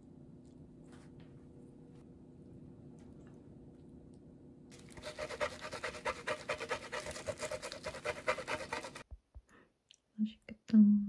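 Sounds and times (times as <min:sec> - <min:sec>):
cheese grating on metal grater: 0:05.0 - 0:09.1.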